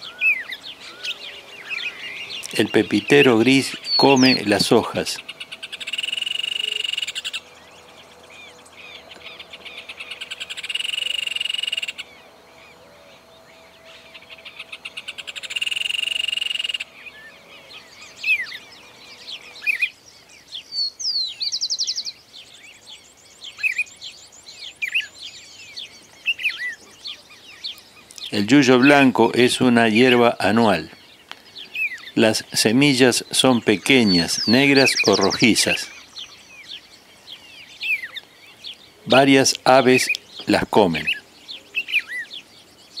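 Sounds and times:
bird chirps and whistles: 5.8s - 7.4s, 10.0s - 12.0s, 14.5s - 17.4s.

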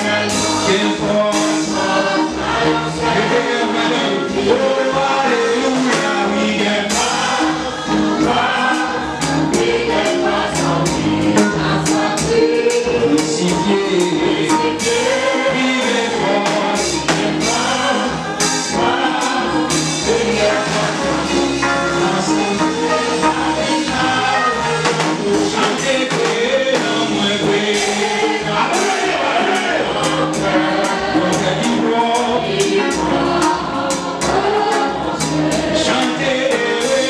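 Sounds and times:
man singing into a microphone: 0.0s - 1.8s, 12.8s - 14.7s, 25.2s - 29.7s, 31.2s - 32.9s
percussion beat: 0.0s - 37.0s.

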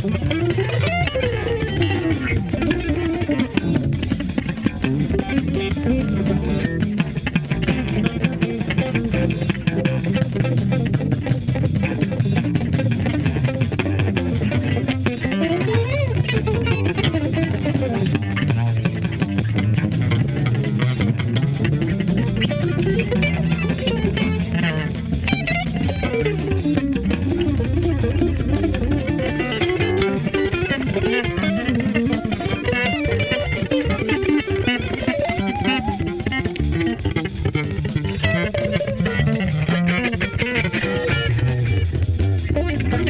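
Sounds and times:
bass guitar: 0.0s - 43.0s
electric guitar: 0.0s - 43.0s
steady drum beat: 0.0s - 43.0s.

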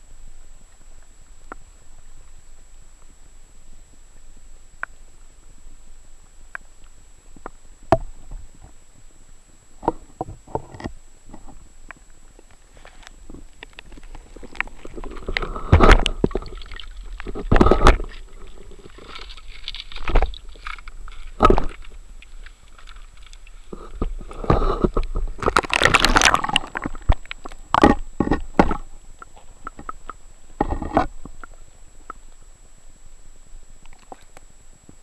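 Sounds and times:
faint high whine: 0.0s - 35.0s
water sloshing: 13.3s - 31.5s
rush of water: 24.2s - 28.0s.

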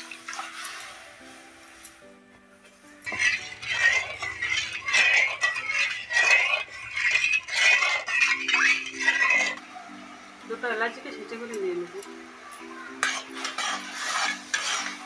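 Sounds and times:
metal spatula scraping a pan: 3.0s - 9.6s, 12.9s - 15.0s.

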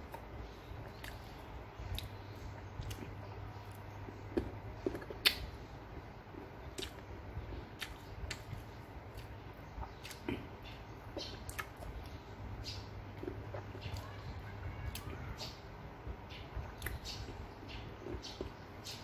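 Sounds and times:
steady low hum: 0.0s - 19.0s
chewing crunches: 2.8s - 5.6s, 6.3s - 7.0s, 7.8s - 12.0s.

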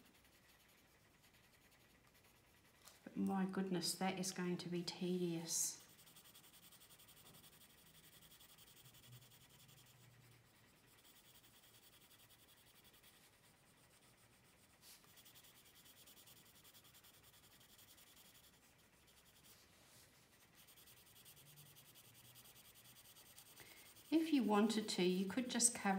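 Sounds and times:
coloured pencil scratching on paper: 0.0s - 25.9s.

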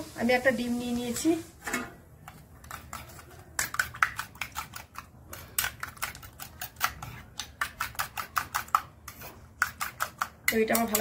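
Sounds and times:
whisk clicking against bowl: 2.3s - 11.0s.

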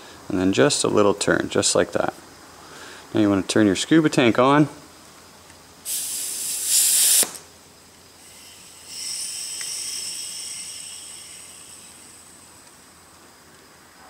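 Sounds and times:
loud air hiss: 5.8s - 13.0s
soft hiss with high whistle: 5.8s - 13.7s.

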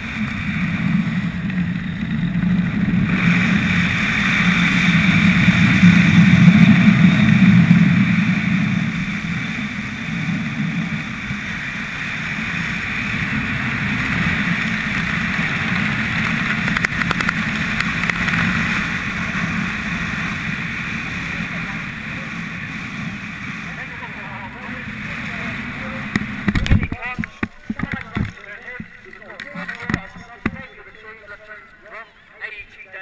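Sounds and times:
wind buffeting microphone: 0.0s - 31.4s
brief crackle: 26.1s - 31.2s.

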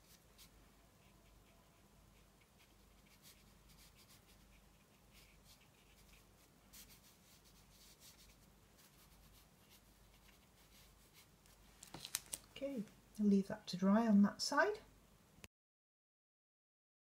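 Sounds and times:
brush dabbing on paper: 0.0s - 12.8s
low steady hum: 0.0s - 15.5s.

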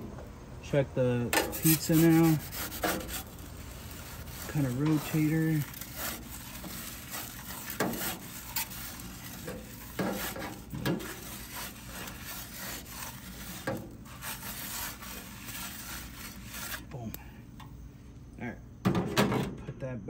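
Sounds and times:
metal peel scraping on stone: 1.3s - 16.9s.

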